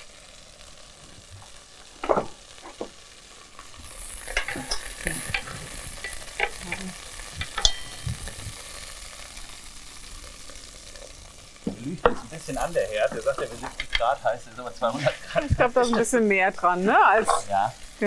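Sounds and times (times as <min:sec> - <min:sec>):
oil sizzling: 0:00.0 - 0:18.0
board knocking against pot: 0:02.0 - 0:02.9.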